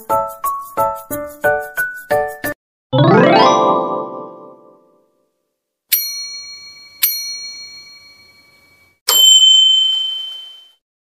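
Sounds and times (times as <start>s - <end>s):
bell dings ringing: 5.9s - 10.8s.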